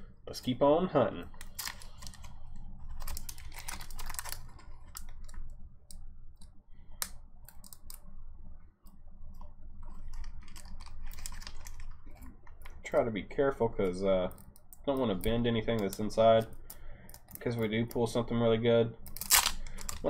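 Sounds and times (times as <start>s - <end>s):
steady low hum: 0.0s - 20.0s
foil wrapper crinkling and tearing: 1.3s - 5.4s, 10.0s - 12.2s, 19.1s - 20.0s.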